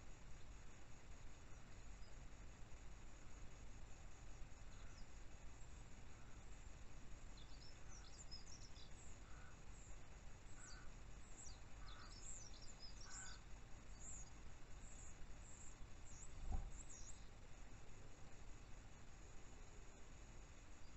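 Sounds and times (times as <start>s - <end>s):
low hiss: 0.0s - 20.9s
birds chirping: 7.4s - 17.4s.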